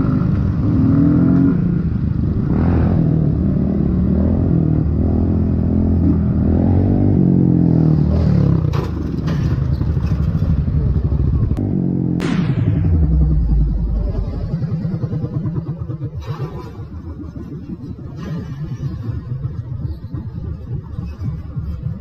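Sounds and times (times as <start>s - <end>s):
motorcycle engine running: 0.0s - 22.0s
motorcycles crashing clattering: 8.6s - 11.0s
sudden loud crack: 12.2s - 15.4s.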